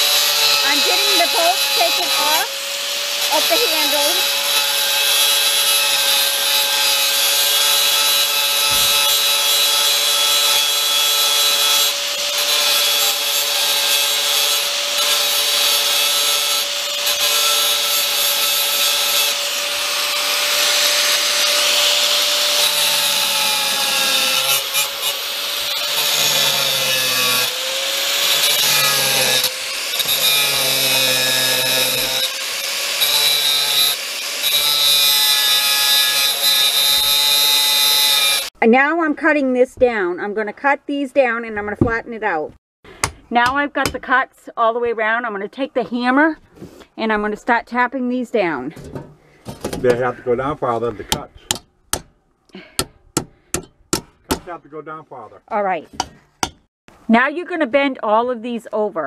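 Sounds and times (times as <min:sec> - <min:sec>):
angle grinder cutting metal: 0:00.0 - 0:38.6.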